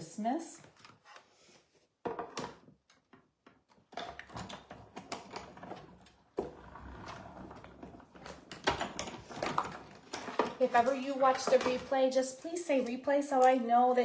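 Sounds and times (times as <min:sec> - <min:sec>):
clicks and knocks of plates: 0:08.2 - 0:12.0.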